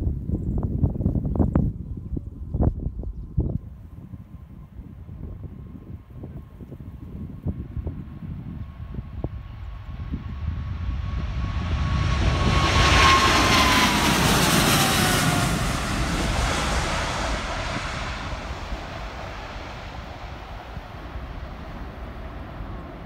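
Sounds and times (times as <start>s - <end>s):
jet engines roaring overhead: 3.9s - 23.0s
jet whine falling in pitch: 10.0s - 19.5s.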